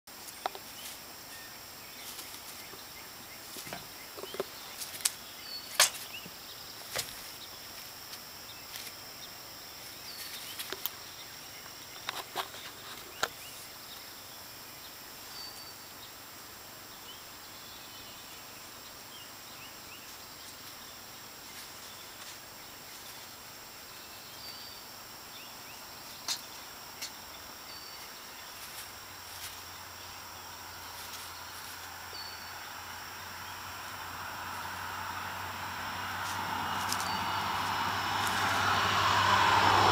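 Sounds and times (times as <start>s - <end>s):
faint chirps: 8.4s - 38.7s.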